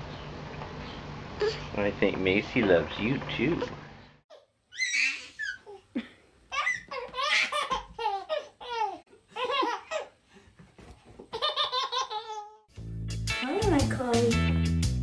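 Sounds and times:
toddler laughing: 0:04.3 - 0:10.2, 0:11.2 - 0:12.7.

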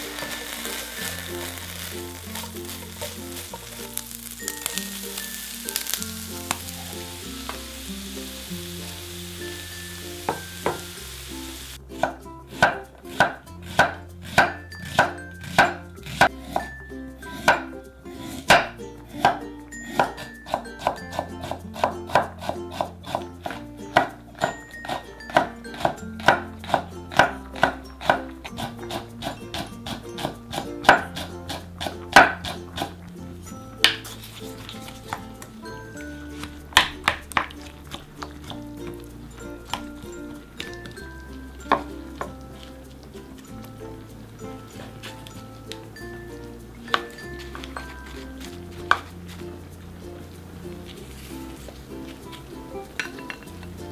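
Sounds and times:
food sizzling in a pan: 0:00.0 - 0:13.3
background music: 0:00.0 - 0:53.9
knife chopping on wooden board: 0:12.0 - 0:15.8, 0:17.4 - 0:17.6, 0:24.9 - 0:33.0.

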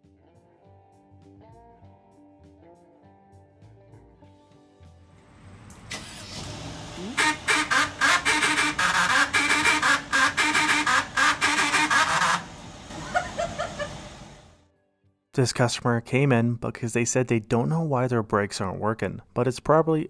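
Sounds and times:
parking brake actuator grinding: 0:05.9 - 0:12.9.

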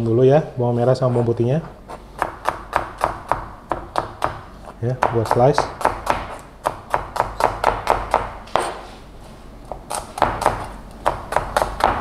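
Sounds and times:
knife tapping cutting board: 0:02.2 - 0:08.8.

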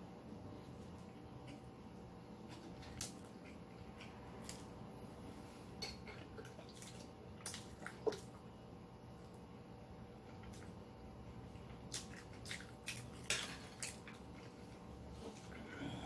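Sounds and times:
chewing: 0:02.4 - 0:04.8.

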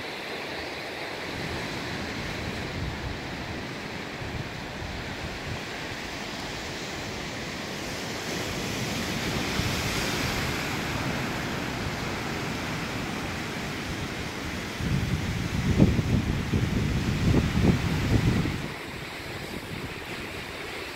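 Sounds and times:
surf breaking over rocks: 0:01.2 - 0:20.9.

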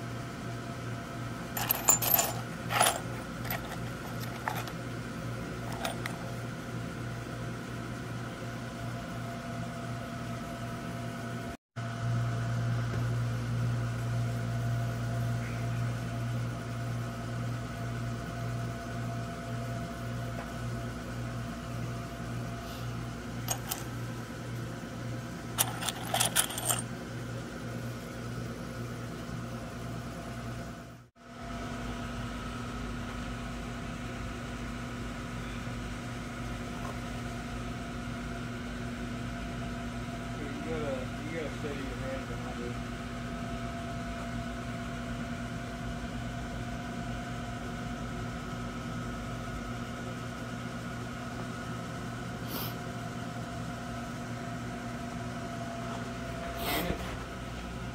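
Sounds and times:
steady mechanical hum: 0:00.0 - 0:57.9
stone arrowheads clinking: 0:01.6 - 0:04.8, 0:23.5 - 0:23.9, 0:25.6 - 0:26.8.

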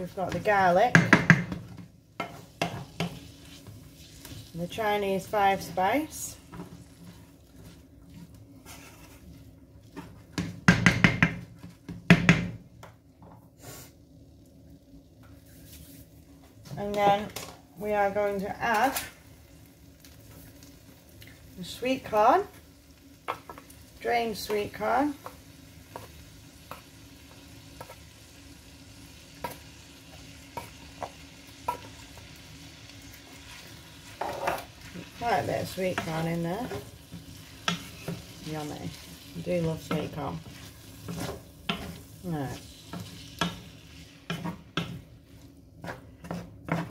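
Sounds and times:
wooden spoon knocking on frying pan: 0:00.3 - 0:03.2, 0:10.3 - 0:13.4
meat sizzling in a pan: 0:02.1 - 0:08.0, 0:19.0 - 0:45.5.

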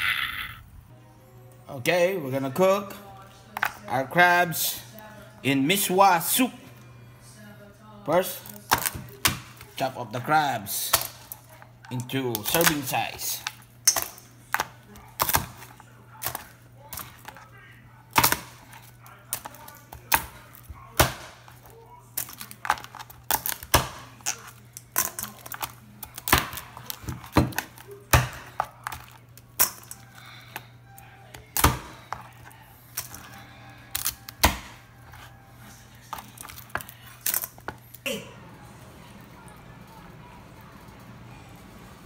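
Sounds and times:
knife chopping crab shells: 0:12.0 - 0:17.4, 0:18.1 - 0:30.6, 0:31.3 - 0:35.3.

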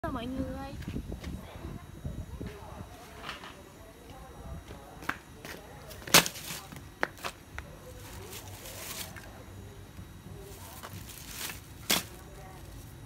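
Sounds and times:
glove and plastic rustling: 0:05.1 - 0:09.7, 0:10.3 - 0:13.0
plastic bag crackle on concrete: 0:05.8 - 0:09.4, 0:10.4 - 0:13.0.

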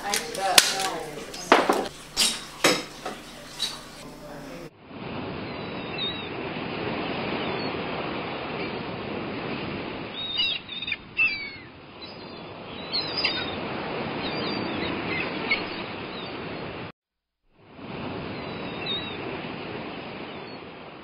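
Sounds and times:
birds chirping: 0:00.0 - 0:04.7, 0:05.5 - 0:06.4, 0:10.0 - 0:16.4.

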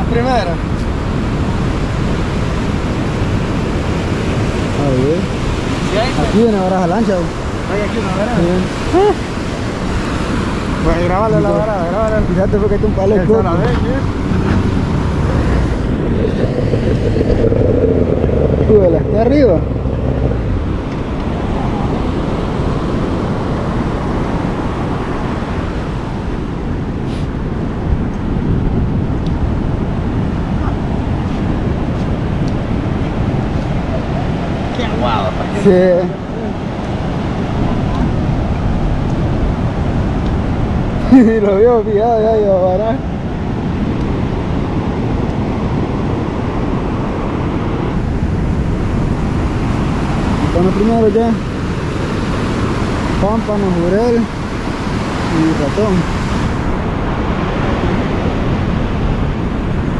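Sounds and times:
ocean surf breaking: 0:00.0 - 0:59.9
wind buffeting microphone: 0:00.0 - 0:59.9.

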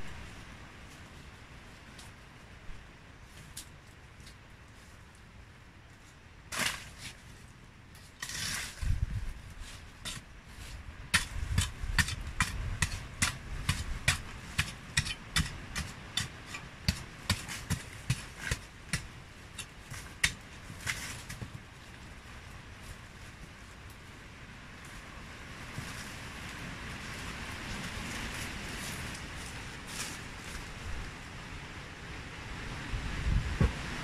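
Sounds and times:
hoe chopping hard earth: 0:11.1 - 0:21.0.

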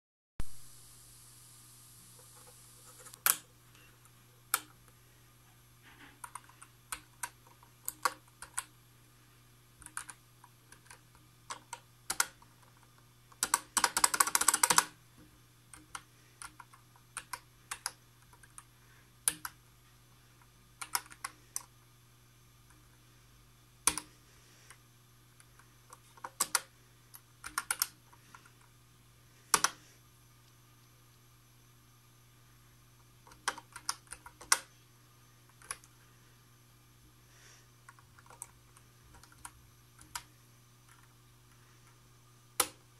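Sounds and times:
calculator keys clicking: 0:09.8 - 0:14.9, 0:20.8 - 0:21.4, 0:27.4 - 0:28.5
calculator printing rattle: 0:10.8 - 0:14.9.

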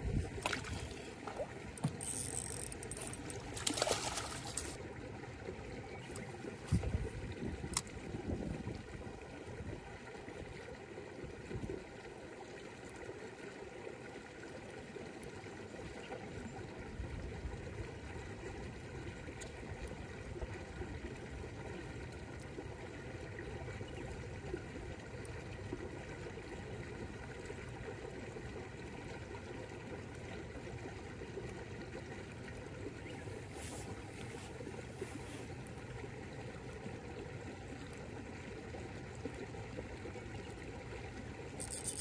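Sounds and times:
moving water rushing: 0:00.0 - 0:04.8.

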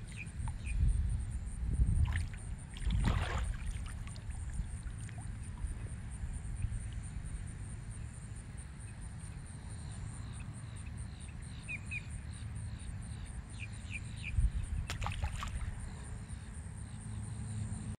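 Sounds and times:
wind rumble on microphone: 0:00.0 - 0:08.0, 0:14.2 - 0:16.3
high insect trill: 0:00.0 - 0:17.9.

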